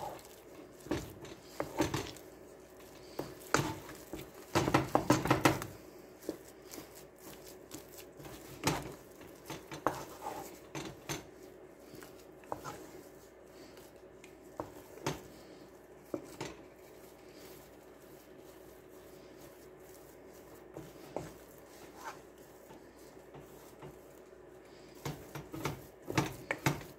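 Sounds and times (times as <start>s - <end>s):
wooden spoon knocking and scraping pot: 0.0s - 18.4s, 19.4s - 26.9s.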